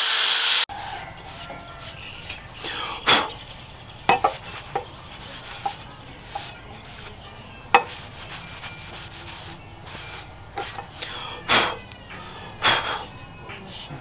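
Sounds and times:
cloth rubbing on steel blade: 0.7s - 2.5s, 3.2s - 11.0s, 13.6s - 14.0s.

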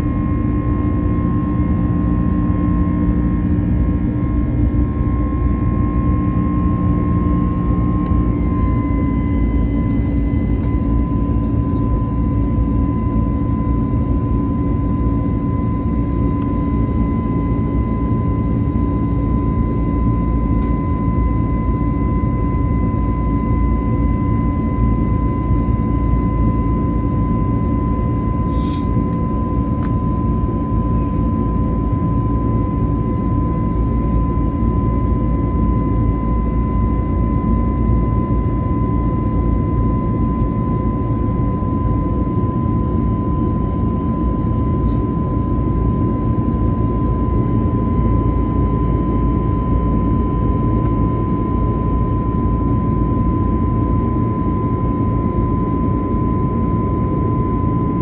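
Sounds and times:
jet engine rumble and rush: 0.0s - 35.0s
steady high whine: 0.0s - 58.0s.

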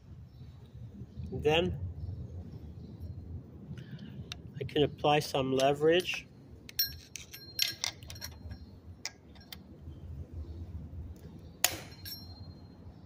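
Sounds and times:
sharp metal click: 11.6s - 12.3s.

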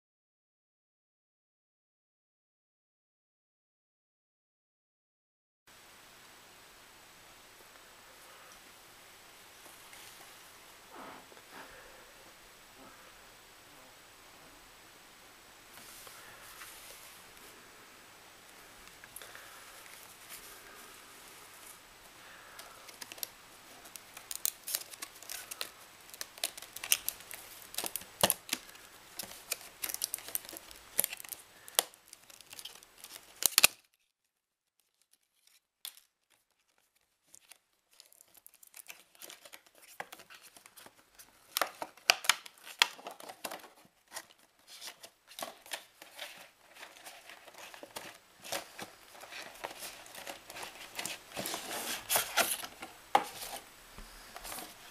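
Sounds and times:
packaging crinkling and tearing: 22.6s - 53.7s, 54.3s - 54.9s.

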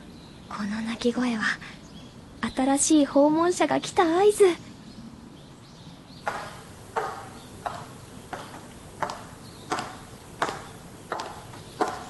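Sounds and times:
hard-soled footsteps on hard floor: 6.2s - 12.0s.

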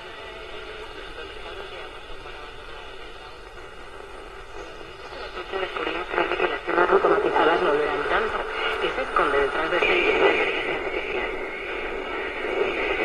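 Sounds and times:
radio hiss and static: 0.0s - 13.0s
radio broadcast voice: 4.6s - 13.0s.

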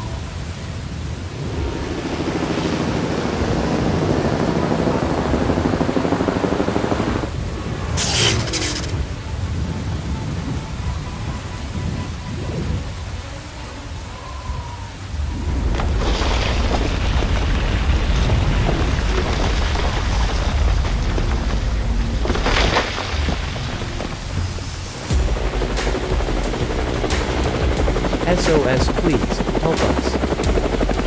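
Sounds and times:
steady rain: 0.0s - 31.0s
thunder rumbling: 14.3s - 31.0s.

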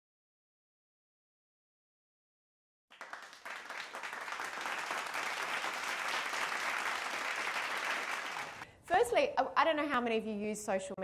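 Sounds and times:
audience applauding: 2.9s - 8.6s.

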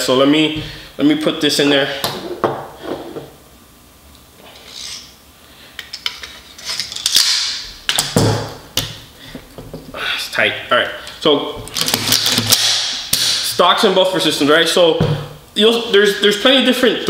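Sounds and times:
metal parts clicking and scraping: 4.5s - 5.1s, 5.8s - 8.2s.

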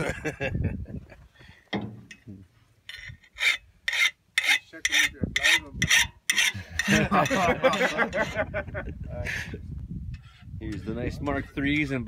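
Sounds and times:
file rasping on steel blade: 2.9s - 8.3s.

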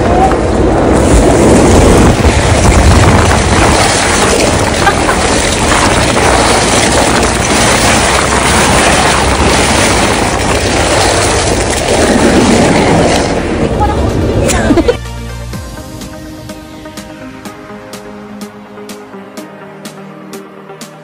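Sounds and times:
sled scraping over snow: 0.0s - 14.9s
wind rushing across microphone: 0.0s - 15.0s.

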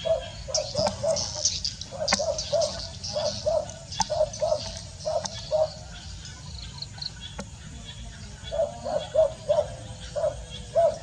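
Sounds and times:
birds chirping: 0.0s - 11.0s
insects chirping: 0.0s - 11.0s
dog barking: 8.5s - 11.0s.

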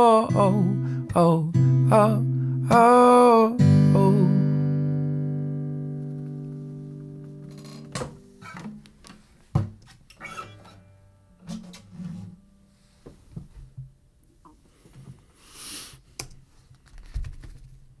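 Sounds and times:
guitar handling clicks and knocks: 6.0s - 12.4s
short hiss: 15.4s - 16.0s.

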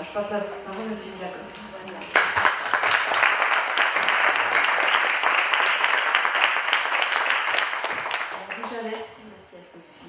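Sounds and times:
audience applauding: 2.2s - 8.9s.

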